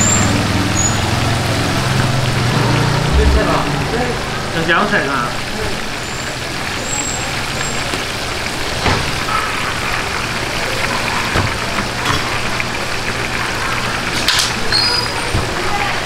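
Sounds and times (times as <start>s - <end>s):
low steady hum: 3.0s - 4.1s
oil sizzling in a wok: 4.6s - 16.0s.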